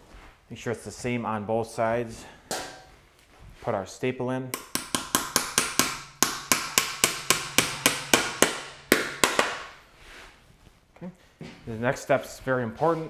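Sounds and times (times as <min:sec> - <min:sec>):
small hammer tapping: 0:04.6 - 0:09.7.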